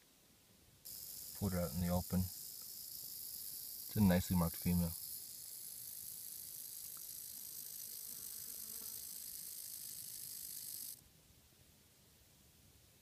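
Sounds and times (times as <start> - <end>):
rattlesnake tail rattling: 0.9 - 11.0.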